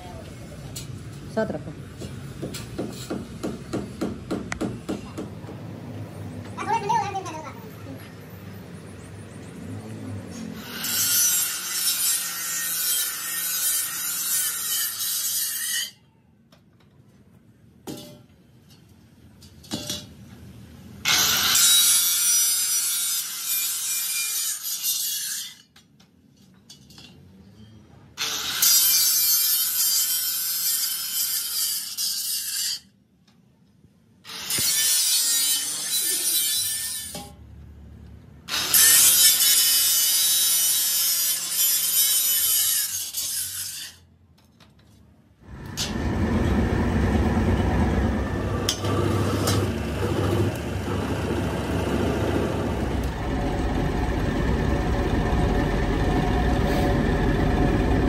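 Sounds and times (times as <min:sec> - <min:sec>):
angle grinder cutting steel: 0:10.4 - 0:16.0, 0:21.1 - 0:25.7, 0:28.2 - 0:32.9, 0:34.2 - 0:37.3, 0:38.5 - 0:44.0, 0:45.4 - 0:58.0
low-pitched machine noise: 0:45.5 - 0:58.0.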